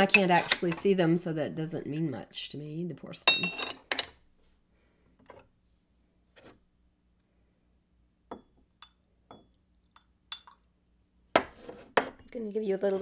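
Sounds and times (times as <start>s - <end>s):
ceramic tea cups clinking: 0.0s - 0.8s, 3.3s - 4.2s.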